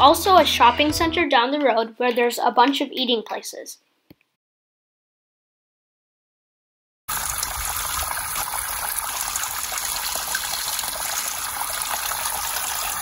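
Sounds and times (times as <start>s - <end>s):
water trickling and splashing: 7.1s - 13.0s.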